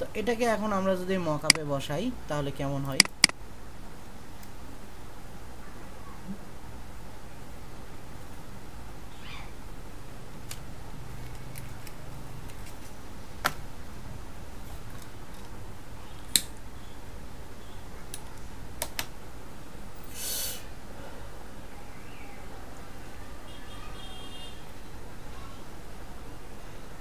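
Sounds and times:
sharp clicks: 2.9 - 3.4.

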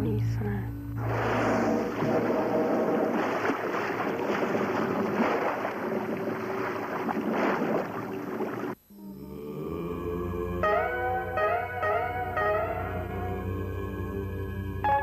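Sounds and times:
slide guitar music: 10.6 - 13.3.

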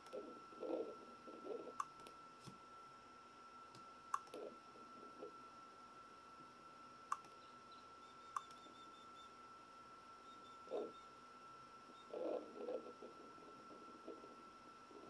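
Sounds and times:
faint high whine: 0.0 - 15.0
sharp clicks: 3.7 - 4.4, 7.1 - 7.4, 8.3 - 8.6.

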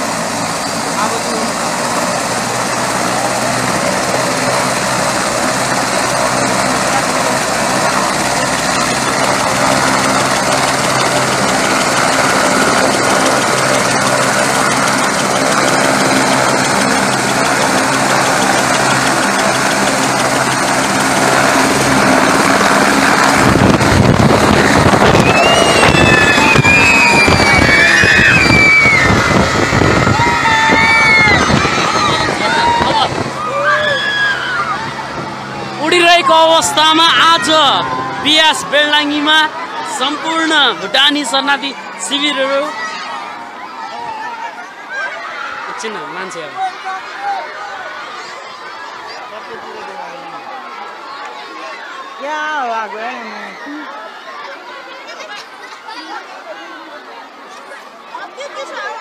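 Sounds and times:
helicopter rotor beat: 0.0 - 56.4
helicopter turbine whine: 0.0 - 59.0
high whistles: 25.0 - 29.1.

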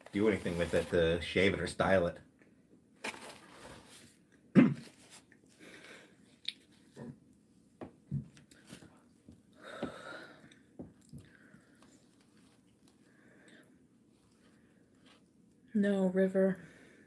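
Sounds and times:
breath: 5.6 - 6.2, 9.6 - 10.6, 13.0 - 13.8, 16.6 - 17.0.

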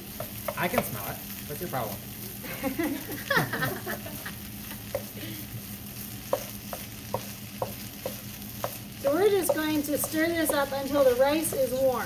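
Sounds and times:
rice sizzling: 0.0 - 12.0
spatula knocking against pan: 6.3 - 8.8, 9.4 - 10.7.

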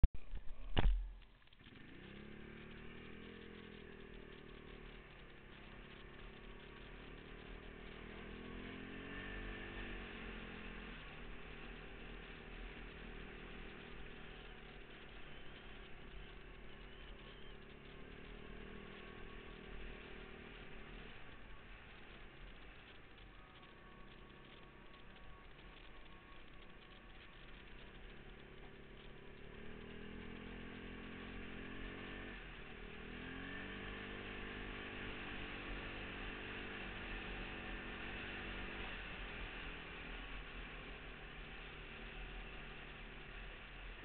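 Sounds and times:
quad engine running: 0.0 - 44.0
sharp thump: 0.6 - 1.2.

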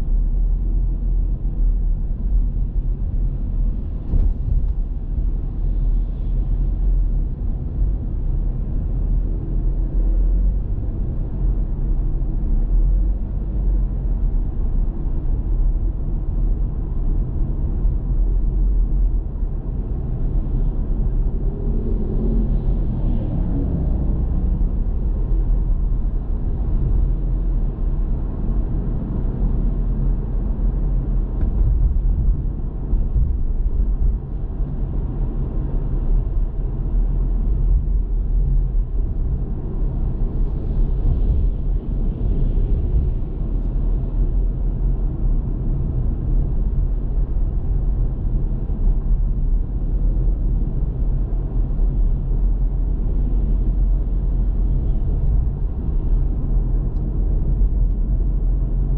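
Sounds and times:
car engine and road rumble: 0.0 - 58.9.

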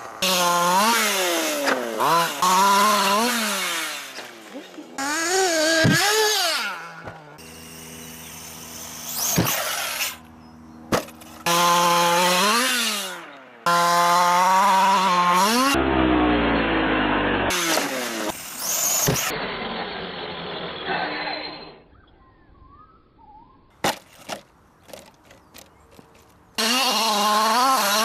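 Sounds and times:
radio-controlled car motors revving: 0.1 - 10.3, 17.0 - 21.9.

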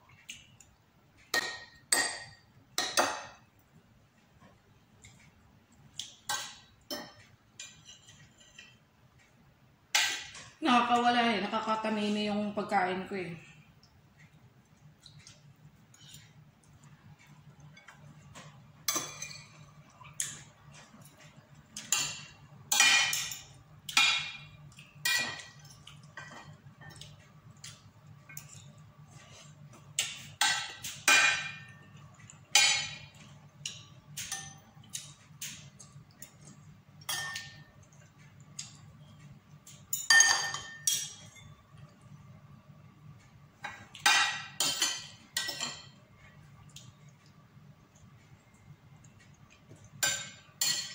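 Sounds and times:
cutlery clinking on a plate: 21.0 - 27.2, 36.2 - 37.8, 39.7 - 41.6, 43.6 - 46.0, 49.7 - 50.9.

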